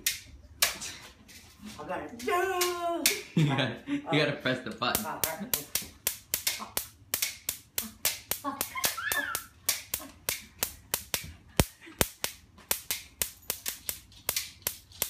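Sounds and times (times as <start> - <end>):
electric fly swatter snapping cracks: 4.9 - 9.0, 9.6 - 15.0.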